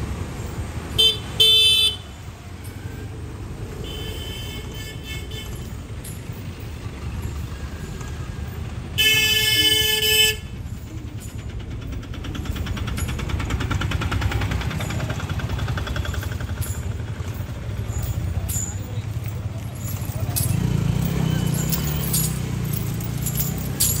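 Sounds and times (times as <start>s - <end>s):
van engine passing: 5.4s - 24.0s.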